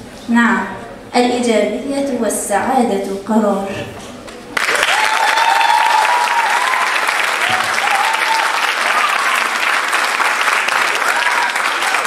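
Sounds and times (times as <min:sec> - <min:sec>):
audience applauding: 0:04.6 - 0:12.0
high drawn-out cheer: 0:04.6 - 0:12.0.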